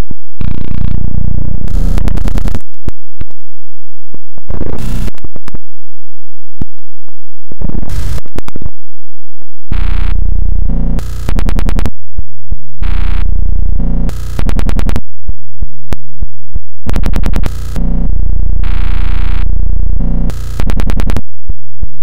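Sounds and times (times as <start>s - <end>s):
distorted electronic music: 0.0s - 3.5s, 4.4s - 5.6s, 7.5s - 8.7s, 9.7s - 11.9s, 12.8s - 15.0s, 16.9s - 21.2s
sharp clicks: 20.3s - 21.2s.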